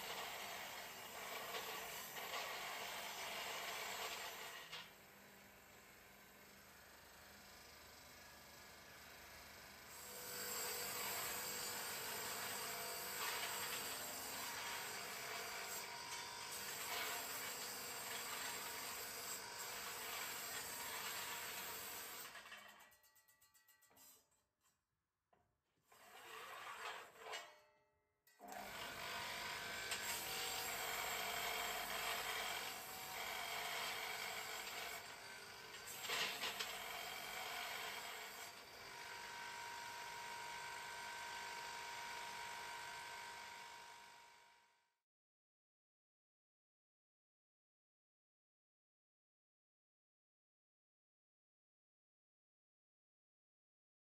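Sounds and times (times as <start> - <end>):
abrasive wheel grinding steel tube: 25.9 - 27.4.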